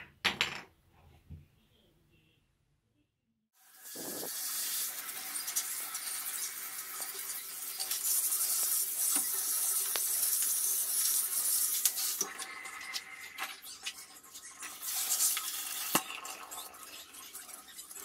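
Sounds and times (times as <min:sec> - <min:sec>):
shower spray hissing on plastic: 0:03.6 - 0:12.3, 0:14.6 - 0:16.1.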